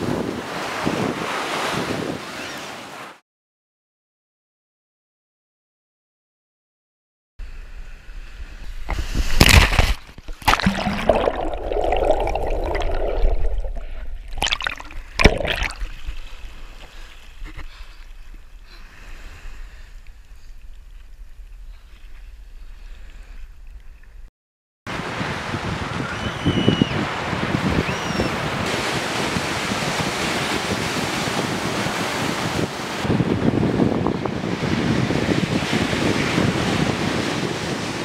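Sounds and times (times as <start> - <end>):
sea water sloshing and gurgling: 8.9 - 18.6
loud water splashes: 9.1 - 16.8
water lapping: 10.0 - 24.2.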